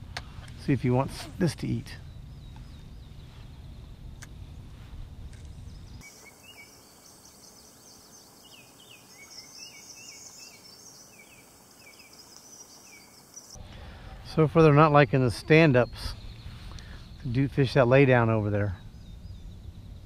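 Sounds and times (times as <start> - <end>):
songbirds chirping: 0.0 - 20.0
high bird twittering: 5.6 - 13.6.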